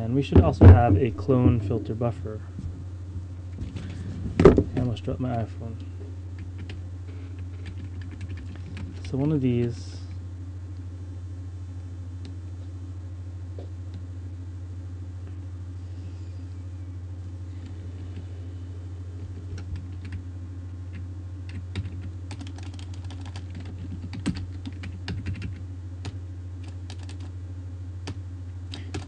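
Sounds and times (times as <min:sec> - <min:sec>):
steady low hum: 0:00.0 - 0:29.0
computer keyboard typing: 0:06.4 - 0:06.8, 0:07.6 - 0:09.1, 0:19.5 - 0:20.2, 0:20.9 - 0:27.3, 0:28.1 - 0:29.0.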